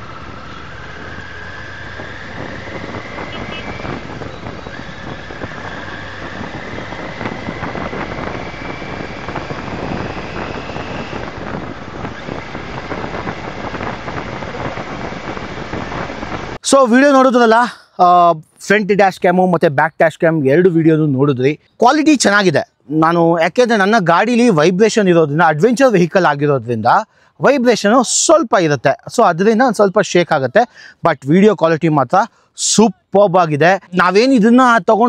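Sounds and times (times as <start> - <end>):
motorcycle engine rumble: 0.0 - 16.6
rising engine whine: 0.0 - 16.6
road noise: 0.0 - 35.0.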